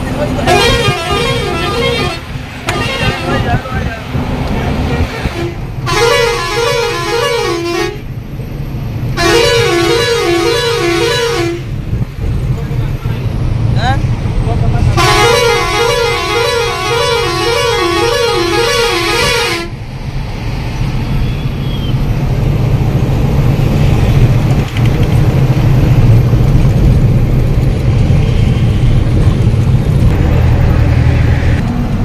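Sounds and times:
truck engine droning: 0:00.0 - 0:32.0
warbling vehicle horn: 0:00.4 - 0:03.5, 0:05.0 - 0:08.1, 0:09.2 - 0:11.8, 0:15.0 - 0:19.8.

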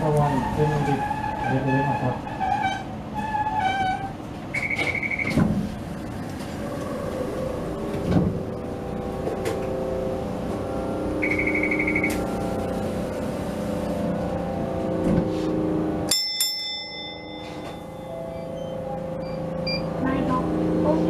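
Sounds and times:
tram running hum: 0:00.0 - 0:21.0
bell ringing in a trill: 0:16.1 - 0:18.6.

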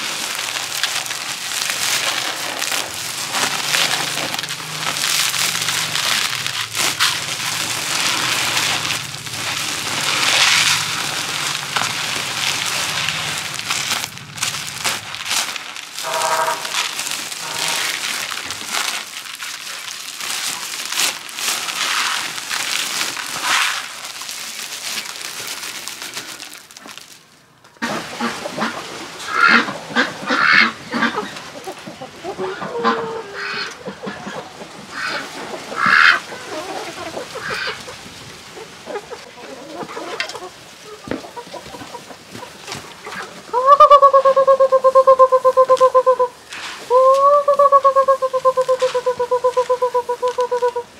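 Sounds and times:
rice grains rustling and crackling: 0:00.0 - 0:50.9
chickens and ducks calling: 0:27.8 - 0:50.9.

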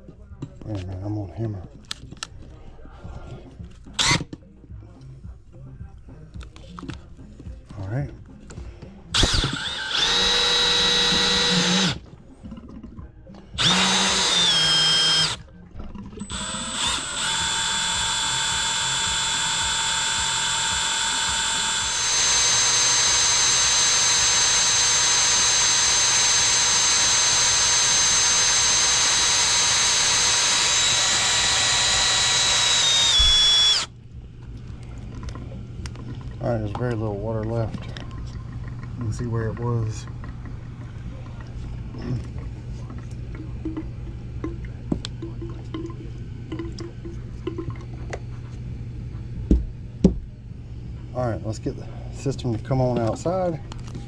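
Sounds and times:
cordless drill driving water pump: 0:03.9 - 0:04.3, 0:08.9 - 0:33.9.

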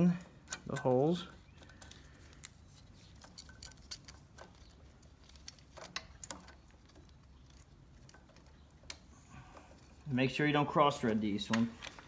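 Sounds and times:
screws clicking and clinking: 0:01.6 - 0:09.0.

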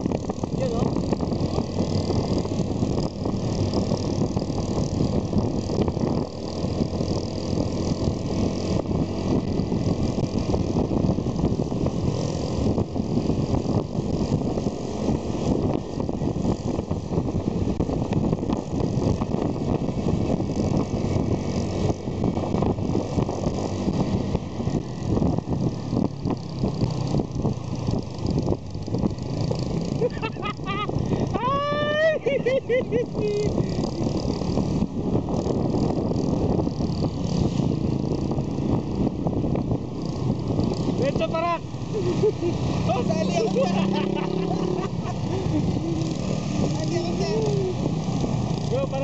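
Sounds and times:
motorcycle engine running: 0:00.0 - 0:49.0
wind noise on microphone: 0:00.0 - 0:49.0.

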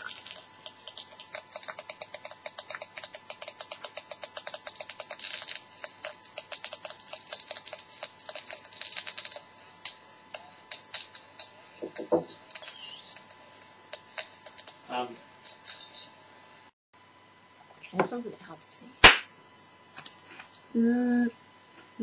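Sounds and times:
rapid clicking from speaker: 0:00.0 - 0:09.4.

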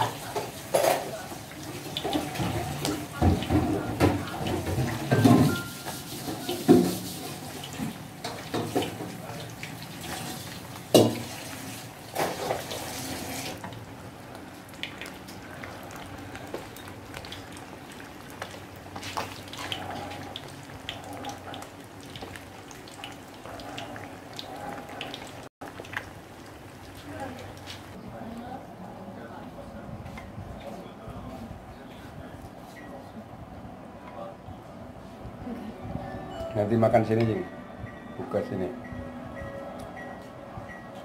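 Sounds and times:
fish frying in oil: 0:00.0 - 0:28.0
soup bubbling in a pot: 0:06.6 - 0:28.0.

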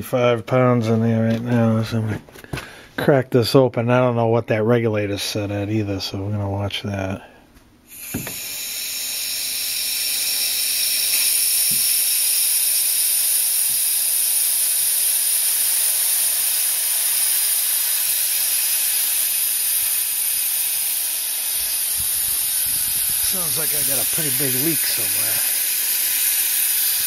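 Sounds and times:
compressed air hissing: 0:07.9 - 0:27.0.

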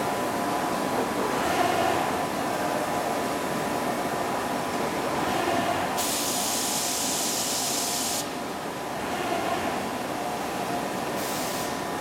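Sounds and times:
loud airy hiss: 0:06.0 - 0:08.3, 0:11.2 - 0:11.8.

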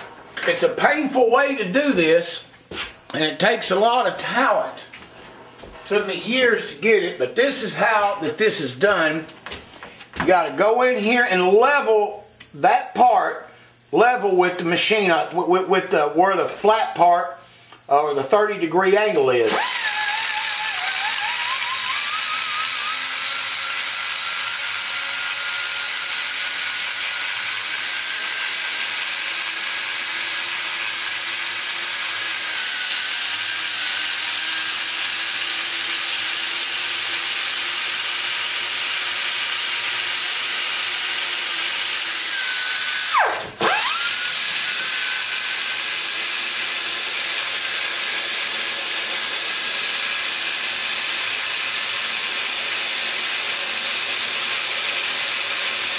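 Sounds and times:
die grinder high whine: 0:19.2 - 0:55.9.

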